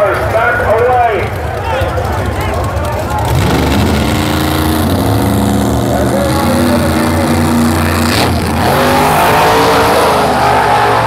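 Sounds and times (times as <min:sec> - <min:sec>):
drag race car engines: 0:00.0 - 0:11.0
crowd yelling: 0:04.9 - 0:11.0.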